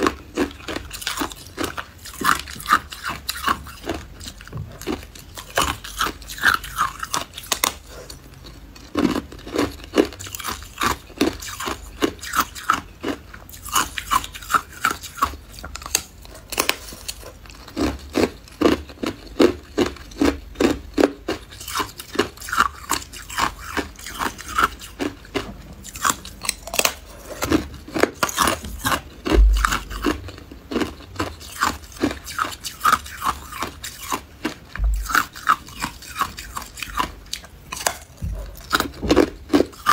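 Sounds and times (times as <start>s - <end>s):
ice crunching being chewed: 0.0s - 39.9s
low thump: 29.3s - 29.8s, 34.8s - 35.1s.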